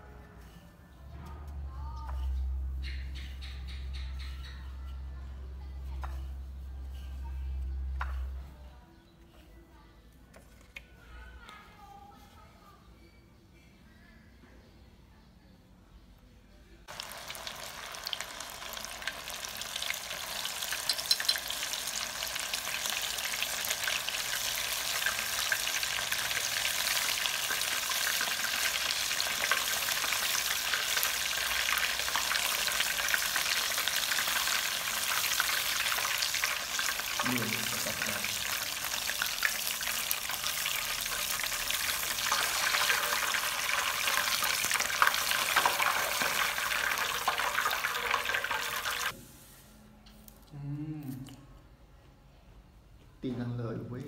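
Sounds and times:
hot oil sizzling and crackling: 16.9s - 49.2s.

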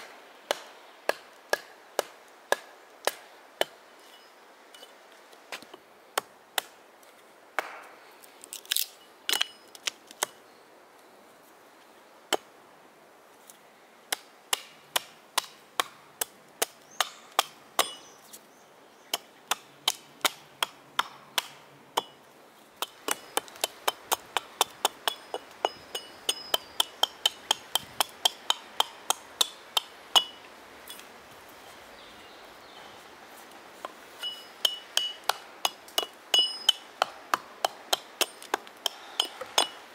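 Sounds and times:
axe chopping wood: 0.5s - 3.7s, 7.6s - 7.9s, 14.1s - 18.0s, 19.5s - 22.1s, 22.8s - 30.4s, 34.6s - 39.8s.

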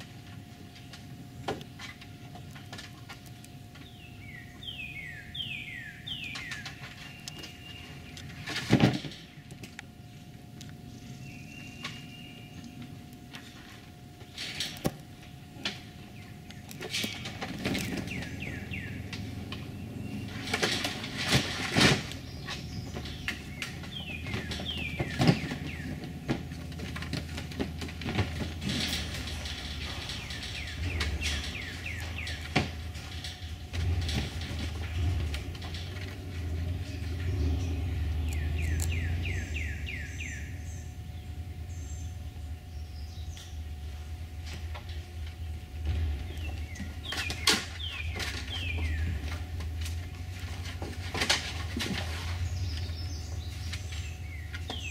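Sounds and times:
songbirds chirping: 0.0s - 54.9s
low rumble: 17.3s - 47.2s.

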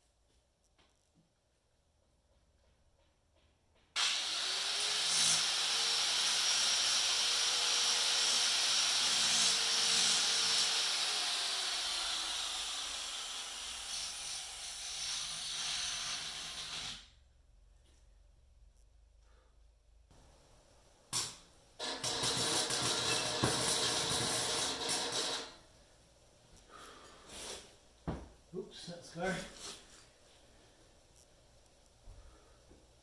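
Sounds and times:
welding arc hissing: 4.0s - 17.1s, 21.1s - 25.6s, 27.3s - 27.8s.

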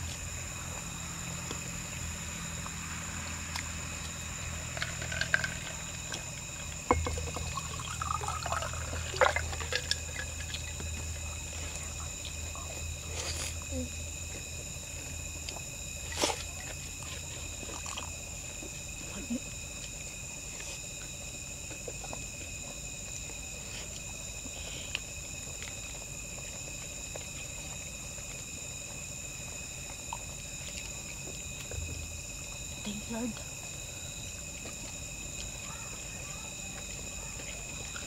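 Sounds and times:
insects trilling: 0.0s - 38.0s.

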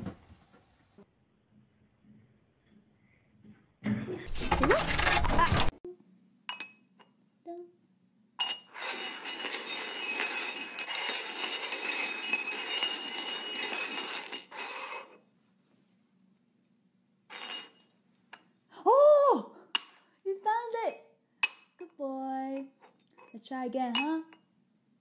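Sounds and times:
metal cups scraping on hard floor: 8.4s - 15.3s, 17.3s - 17.9s.

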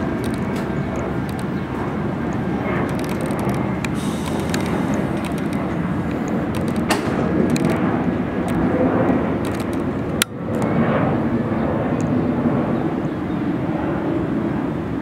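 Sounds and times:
subway train rumbling on rails: 0.0s - 8.3s
clicks and ticks of wheels: 0.2s - 1.6s, 2.8s - 7.8s, 8.4s - 10.7s.

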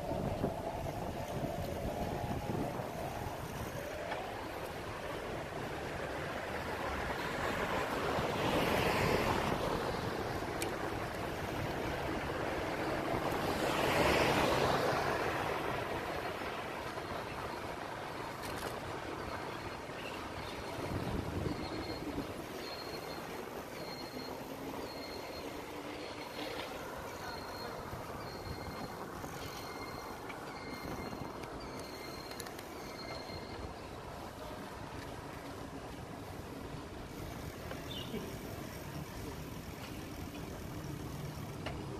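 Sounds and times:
wind on microphone: 0.0s - 4.4s
bicycle tyres rolling on asphalt: 0.0s - 41.9s
traffic: 0.0s - 41.9s.

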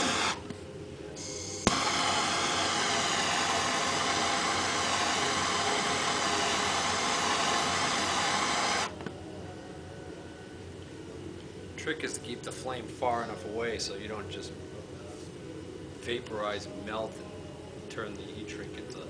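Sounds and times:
gas torch flame hissing: 0.0s - 0.5s, 1.2s - 8.9s
torch click: 1.2s - 8.9s.

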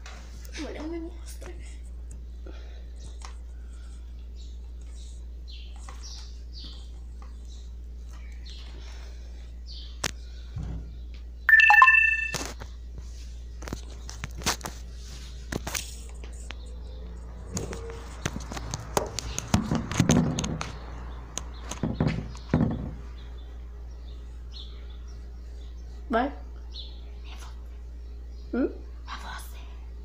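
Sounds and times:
loud high ringing tone: 11.5s - 12.4s.

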